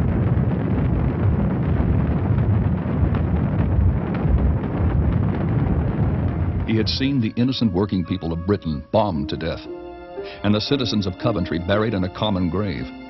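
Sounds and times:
rocket motor rumble: 0:00.0 - 0:07.4.

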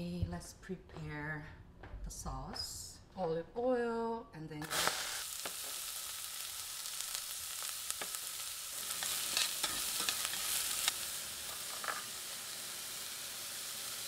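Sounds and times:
onion sizzling in oil: 0:04.6 - 0:14.0.

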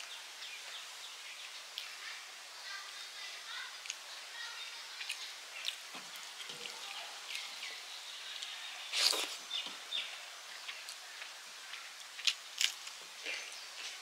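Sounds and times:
wet clicks and squelches of eating: 0:01.4 - 0:02.0, 0:03.8 - 0:04.0, 0:05.0 - 0:07.8.

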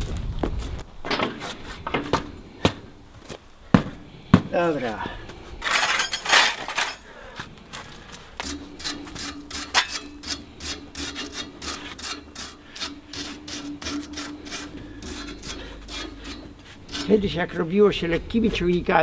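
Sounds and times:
wire brush scraping steel: 0:05.6 - 0:07.0, 0:08.4 - 0:18.7
steady hum: 0:08.2 - 0:19.0.

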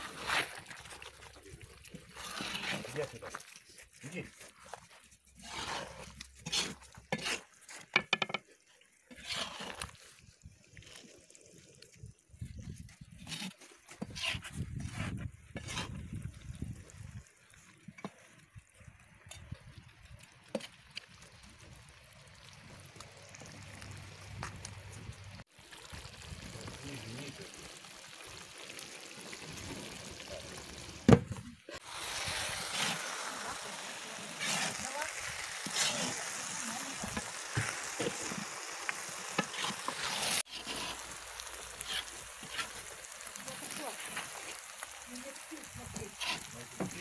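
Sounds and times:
rice dish hissing and bubbling: 0:00.0 - 0:08.4, 0:09.0 - 0:12.0, 0:25.4 - 0:31.1, 0:31.7 - 0:47.0
skimmer clicks and scrapes: 0:39.3 - 0:42.9.

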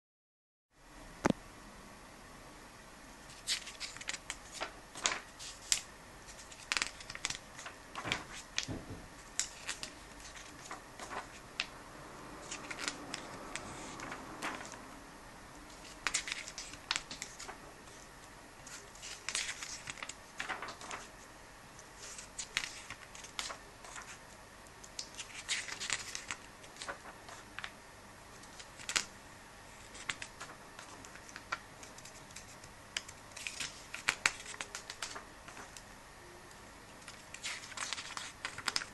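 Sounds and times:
paper pages rustling and flapping: 0:03.3 - 0:14.9, 0:15.7 - 0:21.3, 0:21.9 - 0:24.3, 0:24.9 - 0:27.8, 0:28.4 - 0:29.1, 0:29.7 - 0:35.8, 0:37.0 - 0:38.9.

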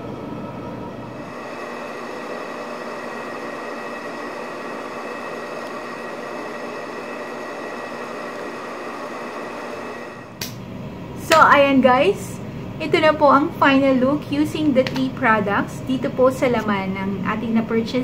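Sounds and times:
machine hum and hiss: 0:00.0 - 0:11.2.

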